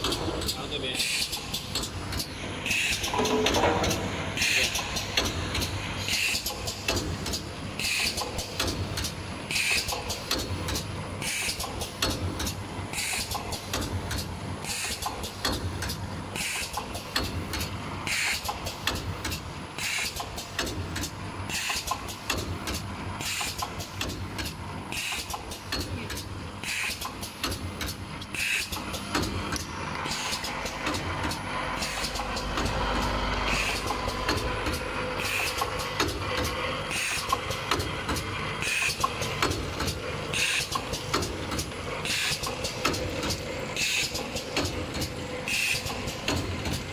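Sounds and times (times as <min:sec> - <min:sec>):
machine clicks: 0:00.0 - 0:46.9
pneumatic air hiss: 0:02.2 - 0:03.2, 0:06.1 - 0:07.1, 0:07.8 - 0:12.2, 0:12.9 - 0:13.8, 0:14.6 - 0:15.6, 0:16.4 - 0:20.7, 0:21.5 - 0:24.0, 0:24.9 - 0:25.9, 0:26.6 - 0:29.3, 0:35.2 - 0:36.2, 0:36.9 - 0:37.5, 0:38.6 - 0:39.6, 0:40.3 - 0:41.2, 0:42.0 - 0:42.6, 0:43.8 - 0:44.7, 0:45.5 - 0:46.5
machinery humming: 0:27.6 - 0:46.9.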